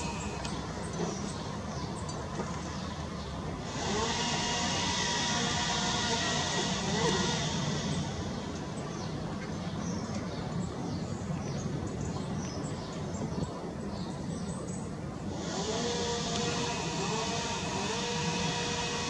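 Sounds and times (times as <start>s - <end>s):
songbirds chirping: 0.0s - 3.6s, 7.9s - 15.3s
camera zoom motor whine: 15.3s - 19.0s.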